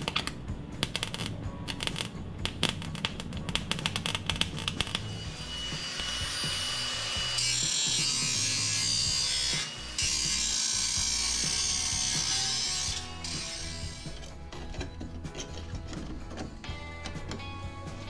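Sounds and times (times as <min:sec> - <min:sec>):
welder crackling: 0:00.0 - 0:14.3
power tool cutting sheet metal: 0:02.7 - 0:14.2.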